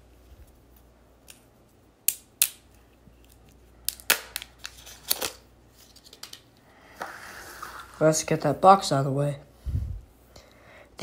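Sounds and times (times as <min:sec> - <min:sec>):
plastic film clicks and snaps: 0:02.1 - 0:05.4.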